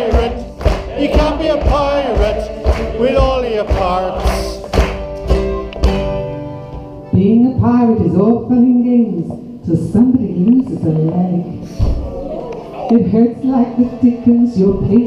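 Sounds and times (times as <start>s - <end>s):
group of voices singing: 0.0s - 4.8s
banjo: 0.0s - 7.1s
strummed acoustic guitar: 0.0s - 7.2s.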